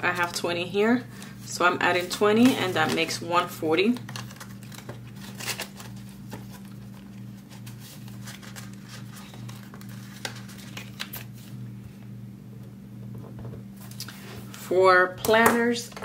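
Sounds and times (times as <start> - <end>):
steady low hum: 0.0 - 16.0
paper rustling: 4.0 - 11.6.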